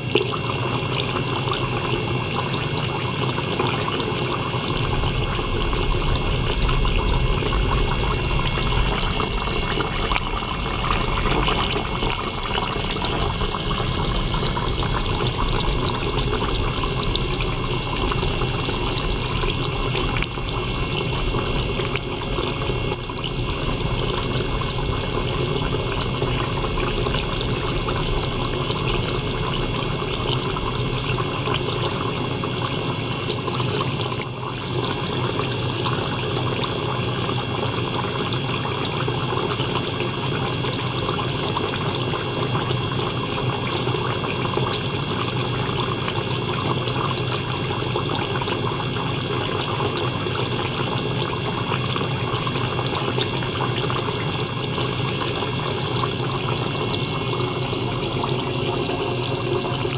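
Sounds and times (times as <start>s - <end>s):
electric pump running: 0.0s - 59.9s
water splashing into tank: 0.0s - 59.9s
steady high whine: 2.1s - 33.4s, 53.4s - 59.9s.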